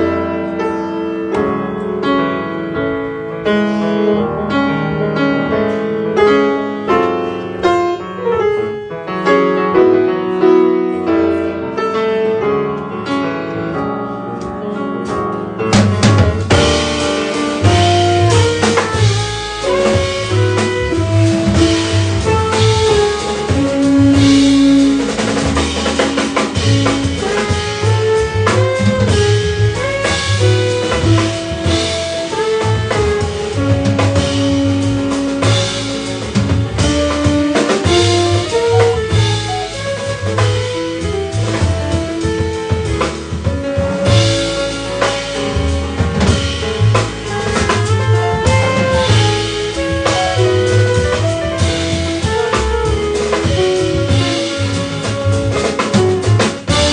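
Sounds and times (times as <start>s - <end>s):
drum kit: 0.0s - 2.2s, 5.4s - 56.9s
grand piano: 0.0s - 56.9s
upright double bass: 0.0s - 56.9s
saxophone melody: 16.5s - 56.9s.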